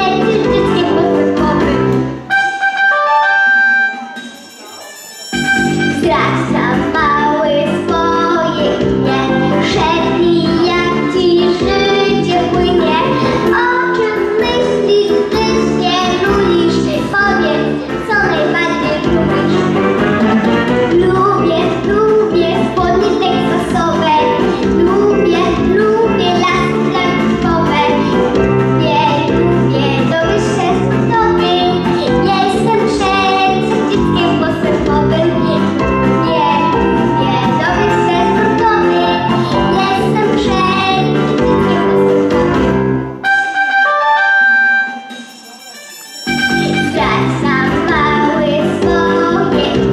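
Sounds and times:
boy singing into a microphone: 0.0 - 1.8, 5.8 - 19.9, 20.9 - 28.1, 28.8 - 42.0, 46.8 - 49.9
loud instrumental accompaniment: 0.0 - 49.9.

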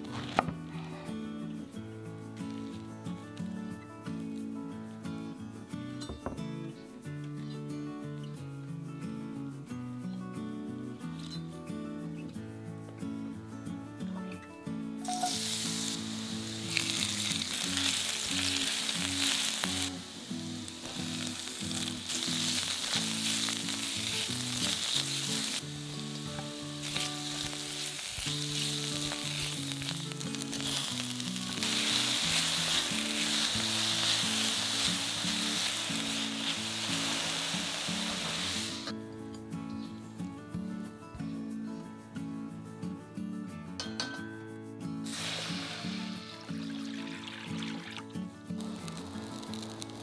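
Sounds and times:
vegetables sizzling in a wok: 0.0 - 0.8, 15.0 - 38.9, 45.0 - 47.9, 48.6 - 50.0
soft background music: 0.0 - 50.0.

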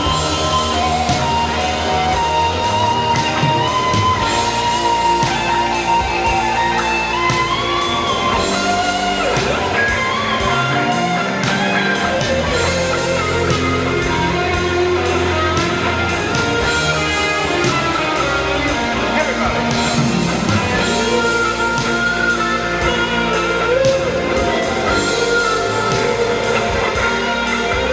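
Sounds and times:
bass line: 0.0 - 27.9
drums: 0.0 - 27.9
electric guitar lead melody: 0.0 - 27.9.

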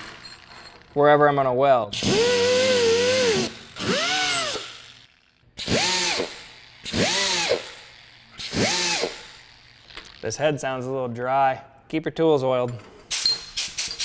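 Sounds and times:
air die grinder whine: 2.0 - 10.4.

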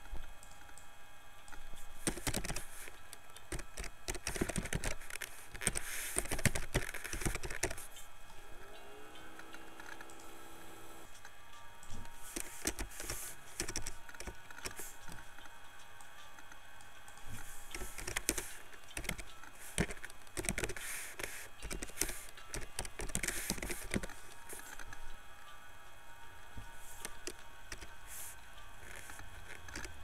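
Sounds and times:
keyboard typing: 1.5 - 11.1, 11.8 - 15.5, 17.1 - 25.1, 26.6 - 30.0.

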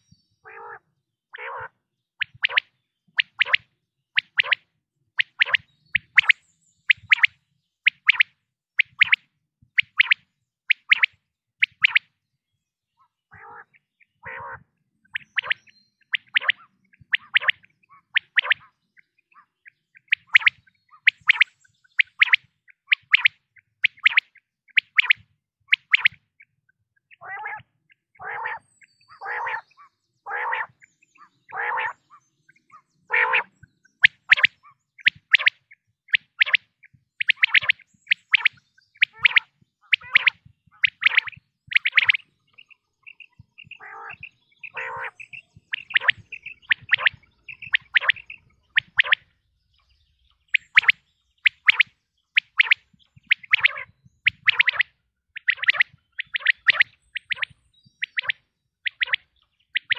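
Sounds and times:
quail calling: 0.0 - 2.6, 5.2 - 7.3, 13.3 - 18.7, 27.1 - 49.3, 50.4 - 59.9.

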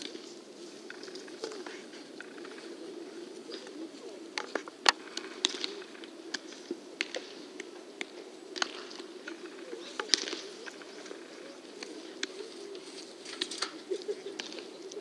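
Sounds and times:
baseballs popping into gloves: 4.4 - 9.4.

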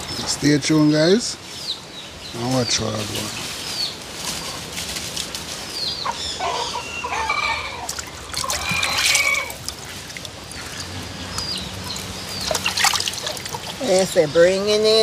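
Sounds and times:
chickens clucking: 5.8 - 15.0
water sloshing in a pot: 7.9 - 14.2.

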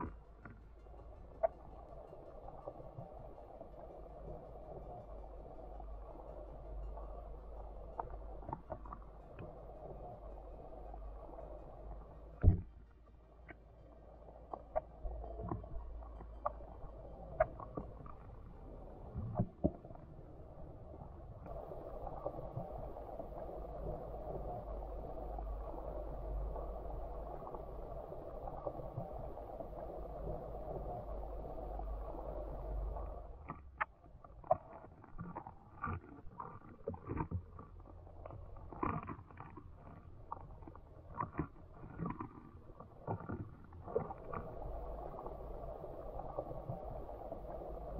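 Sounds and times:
underwater low rumble: 0.0 - 47.9
underwater clicks and taps: 12.4 - 12.8
rushing water noise: 21.5 - 33.4, 43.9 - 47.9.

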